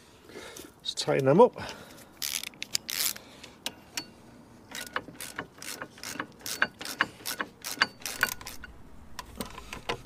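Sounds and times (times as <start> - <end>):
ratchet wrench clicking: 2.2 - 3.2, 4.7 - 8.7.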